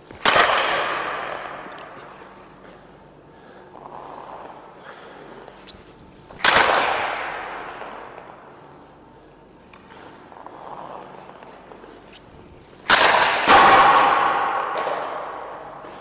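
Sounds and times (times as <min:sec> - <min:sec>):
skates scraping ice: 0:00.0 - 0:16.0
hockey stick slapshot crack: 0:00.1 - 0:02.2, 0:06.3 - 0:08.4, 0:12.8 - 0:16.0.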